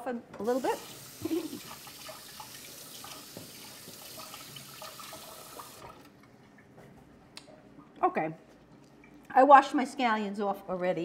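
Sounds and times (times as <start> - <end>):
tap water running: 0.4 - 6.7.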